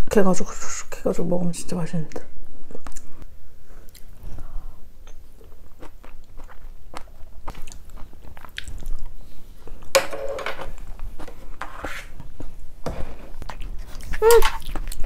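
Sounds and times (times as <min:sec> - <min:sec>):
person chewing food: 0:02.7 - 0:09.9, 0:13.2 - 0:15.0.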